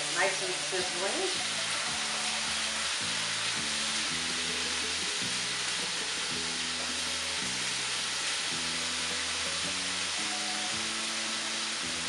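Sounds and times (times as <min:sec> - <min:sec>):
chicken sizzling in a skillet: 0:00.0 - 0:12.0.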